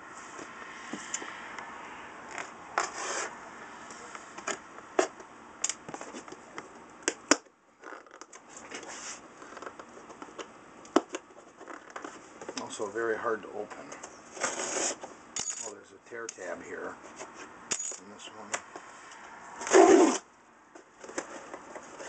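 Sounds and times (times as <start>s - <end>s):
cardboard box scraping and rustling: 2.8s - 3.4s, 8.5s - 9.3s, 14.3s - 15.1s, 19.6s - 20.3s, 21.0s - 22.0s.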